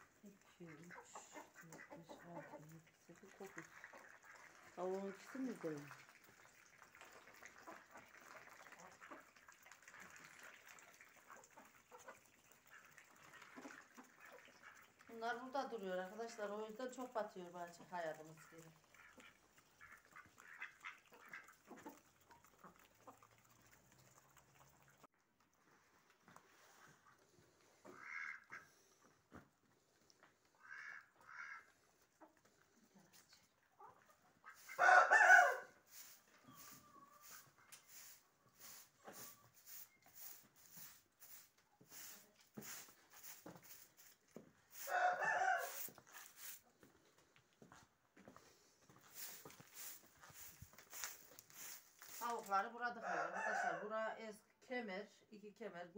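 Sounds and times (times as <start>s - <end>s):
chickens and ducks calling: 0.0s - 2.8s, 33.8s - 39.7s, 44.7s - 46.3s
chickens clucking: 0.0s - 5.8s, 11.1s - 15.3s, 17.5s - 25.0s, 33.6s - 40.8s.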